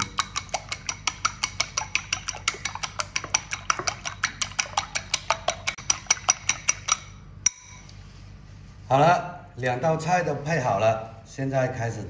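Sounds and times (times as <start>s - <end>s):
liquid egg sloshing: 0.0s - 7.2s
chopsticks clicking against glass bowl: 0.0s - 7.9s.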